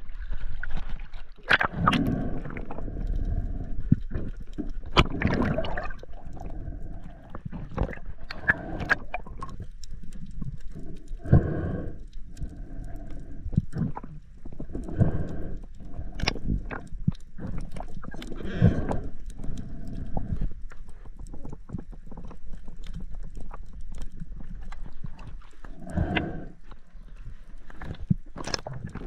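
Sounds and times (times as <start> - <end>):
underwater clicks and knocks: 7.4 - 10.6.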